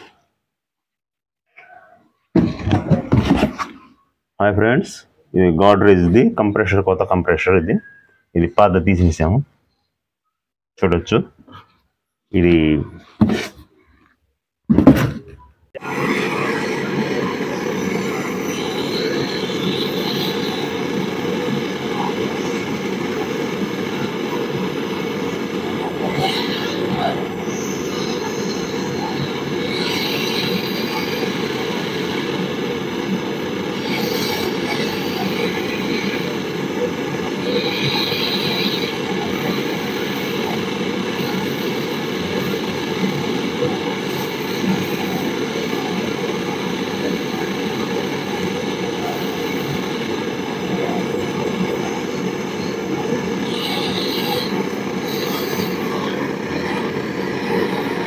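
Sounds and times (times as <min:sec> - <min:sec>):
gas torch burning: 0:15.8 - 0:58.0.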